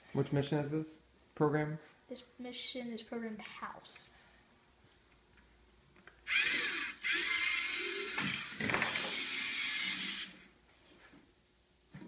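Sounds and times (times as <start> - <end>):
robot servo motors whirring: 6.2 - 10.4.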